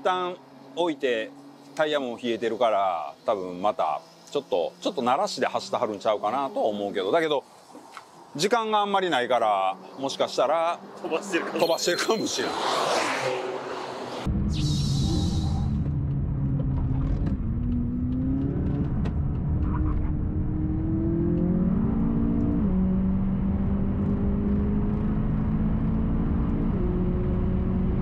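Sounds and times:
car engine revving: 0:12.2 - 0:28.0.

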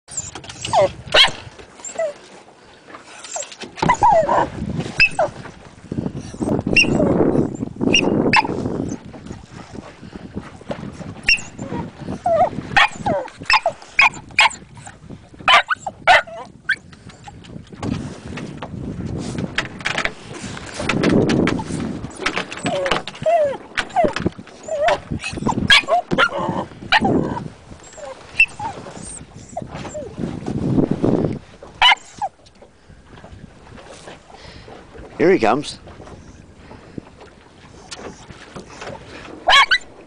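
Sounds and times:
small dog yipping and barking: 0:00.1 - 0:02.2, 0:11.3 - 0:14.6, 0:15.5 - 0:16.8, 0:24.7 - 0:27.4, 0:31.8 - 0:32.3, 0:39.5 - 0:39.9.

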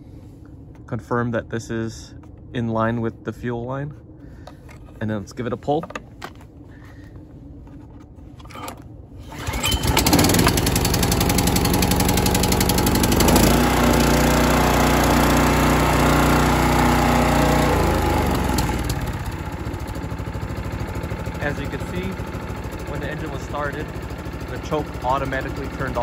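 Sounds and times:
small engine running: 0:09.2 - 0:26.0.

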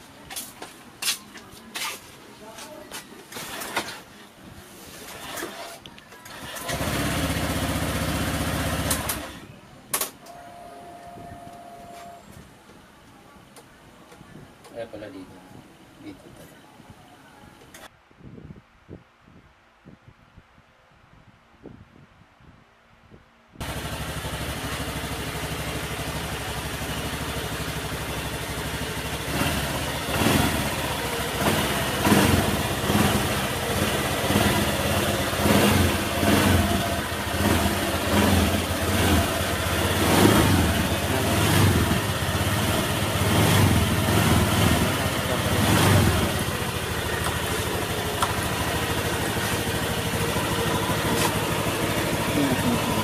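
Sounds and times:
scooter engine idling and revving: 0:03.3 - 0:04.1, 0:04.9 - 0:09.6, 0:23.6 - 0:53.0.

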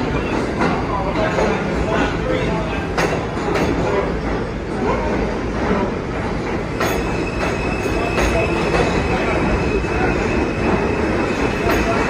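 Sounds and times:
subway train rumbling: 0:00.0 - 0:12.0
sharp clacks: 0:06.4 - 0:09.1
high squeal: 0:06.9 - 0:11.6.

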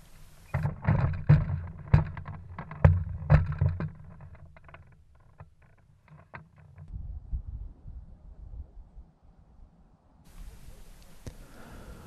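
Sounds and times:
sharp clicks and knocks: 0:00.0 - 0:06.9
wind gusting on microphone: 0:06.9 - 0:12.0.

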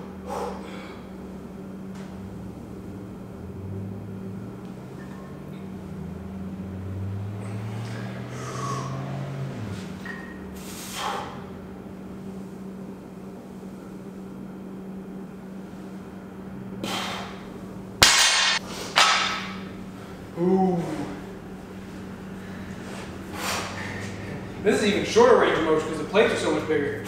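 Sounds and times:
breathy exhales: 0:00.0 - 0:01.2, 0:07.4 - 0:11.6, 0:16.8 - 0:17.5, 0:22.3 - 0:24.5.

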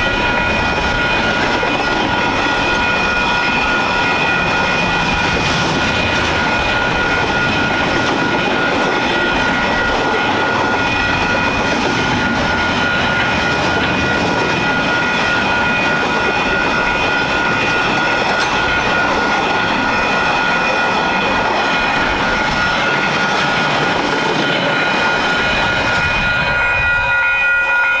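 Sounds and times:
freight train wheels rattling: 0:00.0 - 0:27.8
crossing alarm bells ringing: 0:00.0 - 0:28.0.

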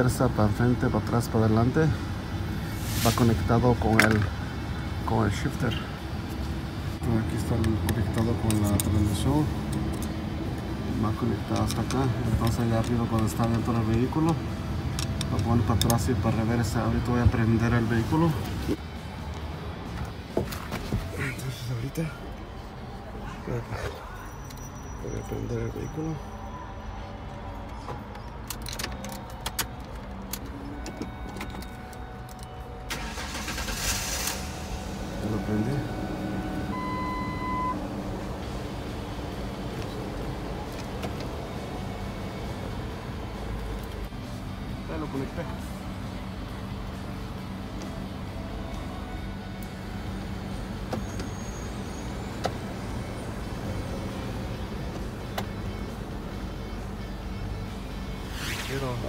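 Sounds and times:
gear shifter clicks: 0:11.4 - 0:16.1, 0:28.0 - 0:33.8
engine idling: 0:32.8 - 0:58.2
engine cranking and starting: 0:32.9 - 0:35.2.

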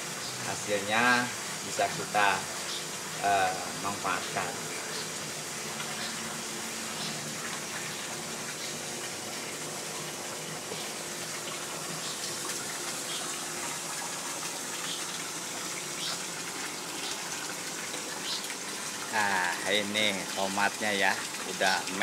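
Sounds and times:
water running into pond: 0:00.0 - 0:22.0.

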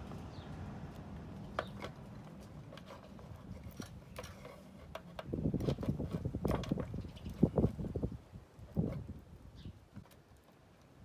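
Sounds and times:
knocking and rustling: 0:01.4 - 0:08.1.

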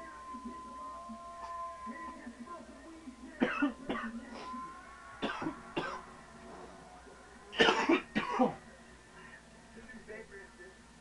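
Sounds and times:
man coughing harshly: 0:03.4 - 0:04.2, 0:05.2 - 0:06.1, 0:07.6 - 0:08.6.

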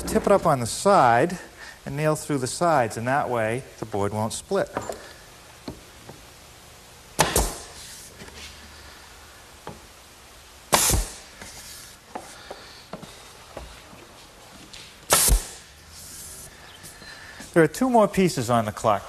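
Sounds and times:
nail gun firing: 0:07.2 - 0:07.7, 0:10.7 - 0:11.3, 0:15.1 - 0:15.6.

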